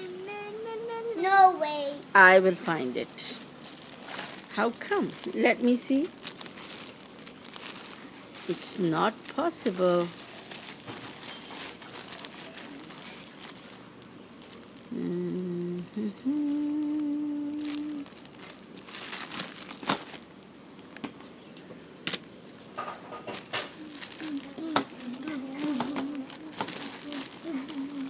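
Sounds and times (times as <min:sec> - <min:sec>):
person humming: 0:00.0 - 0:01.2, 0:14.9 - 0:18.1, 0:23.7 - 0:28.0
plastic bag crinkling: 0:02.1 - 0:28.0.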